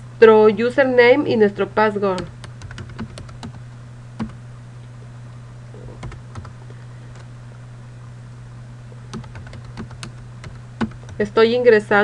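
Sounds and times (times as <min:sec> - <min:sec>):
steady low hum: 0:00.0 - 0:12.0
computer keyboard keystrokes: 0:02.2 - 0:03.6, 0:06.0 - 0:06.6, 0:09.1 - 0:11.3.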